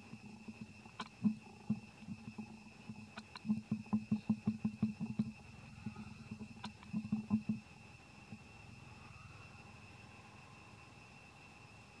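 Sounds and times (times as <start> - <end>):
mouth clicks: 0.0 - 7.6
baby monkey sucking: 3.1 - 3.6.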